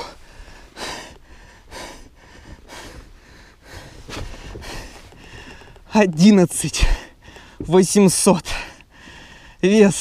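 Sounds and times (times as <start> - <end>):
man breathing hard: 0.0 - 5.9, 6.9 - 7.6, 8.5 - 9.6.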